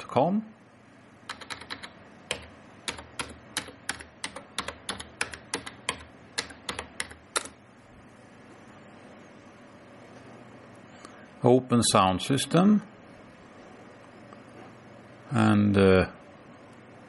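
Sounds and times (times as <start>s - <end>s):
keyboard typing clicks: 1.3s - 7.6s.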